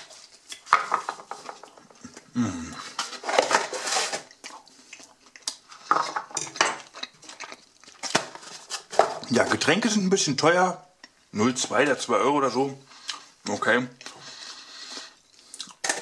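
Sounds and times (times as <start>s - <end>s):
cardboard boxes scraping and rustling: 3.0s - 4.3s.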